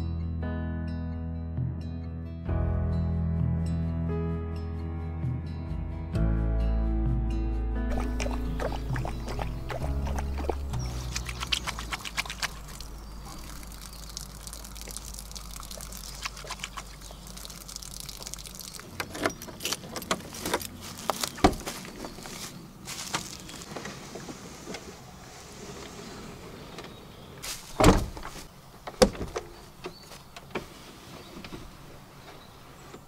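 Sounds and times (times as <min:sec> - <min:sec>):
water running from tap: 0:07.9 - 0:19.0.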